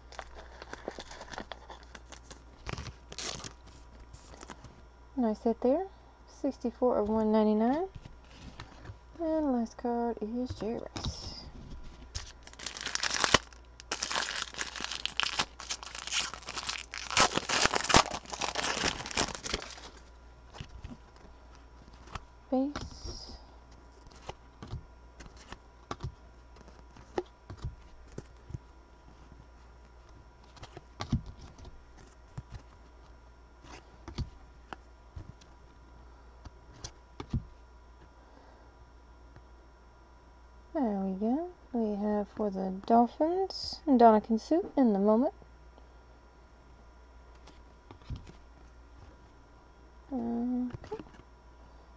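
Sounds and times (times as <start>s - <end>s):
foil wrapper crinkling and tearing: 0.0s - 4.6s, 12.1s - 21.2s.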